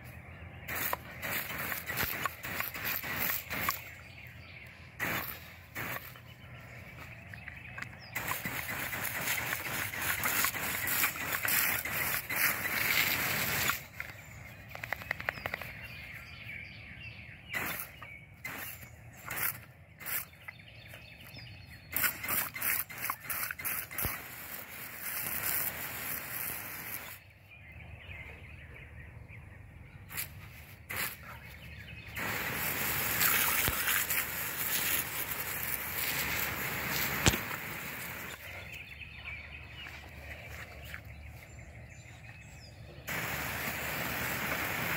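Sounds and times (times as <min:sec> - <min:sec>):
garden hose nozzle spraying water: 0:00.7 - 0:03.9, 0:05.0 - 0:06.3, 0:08.0 - 0:14.1, 0:17.6 - 0:20.4, 0:21.9 - 0:27.2, 0:30.1 - 0:31.3, 0:32.1 - 0:38.5, 0:43.1 - 0:44.9.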